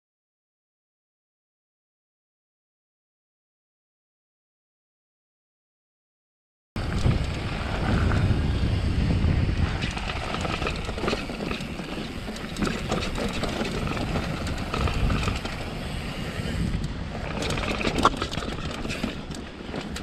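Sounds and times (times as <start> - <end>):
low rumble: 6.8 - 17.8
bike rattling and clicking: 6.8 - 20.0
bike tyres crunching on dirt: 6.8 - 20.0.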